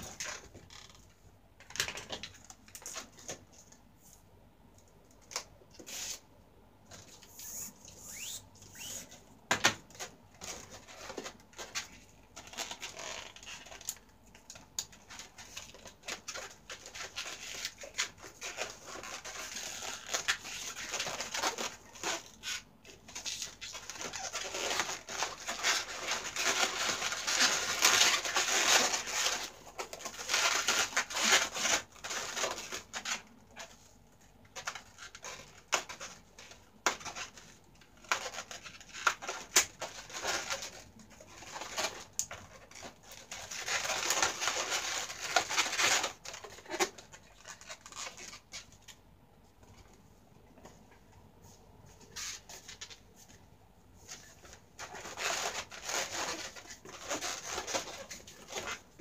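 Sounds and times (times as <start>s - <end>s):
balloons squeaking and rubbing: 7.1s - 9.2s, 12.4s - 13.9s, 16.3s - 33.7s, 38.0s - 48.8s, 52.0s - 52.9s, 54.2s - 59.0s.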